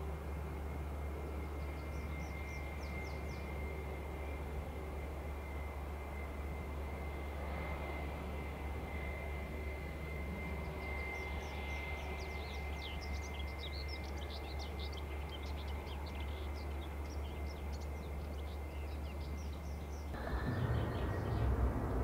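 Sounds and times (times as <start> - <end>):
jet engines idling: 0.0 - 22.0
songbirds chirping: 1.3 - 4.5, 10.4 - 22.0.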